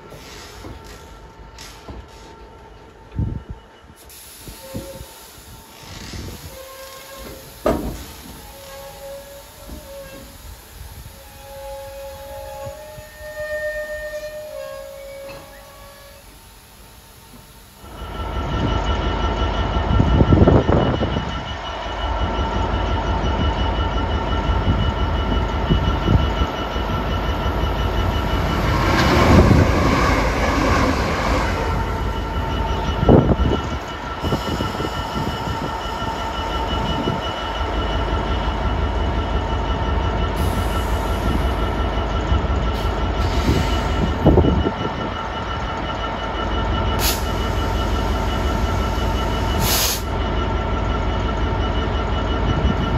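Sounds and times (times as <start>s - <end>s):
diesel locomotive engine rumble: 0.0s - 52.9s
wheels squealing and clanking: 5.7s - 10.4s, 11.4s - 16.3s, 26.0s - 37.2s.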